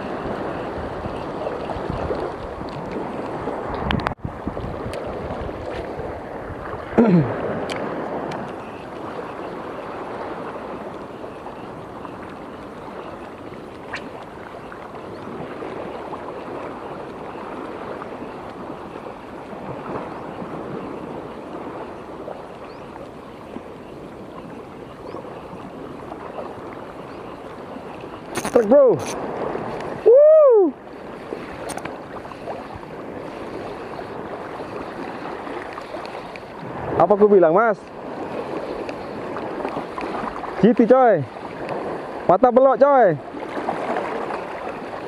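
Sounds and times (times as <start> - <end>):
water lapping: 0.0 - 45.0.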